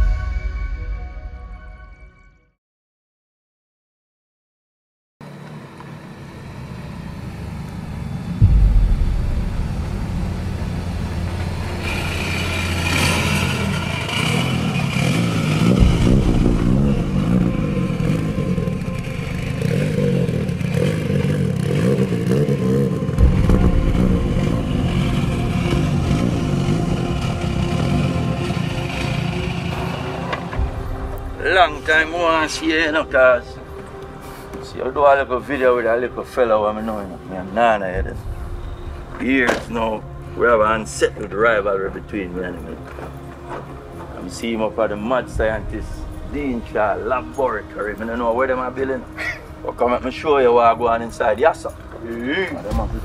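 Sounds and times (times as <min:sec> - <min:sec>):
motorcycle engine revving: 0:06.8 - 0:32.0
low thump: 0:08.4 - 0:12.2, 0:15.8 - 0:18.0, 0:23.2 - 0:24.6.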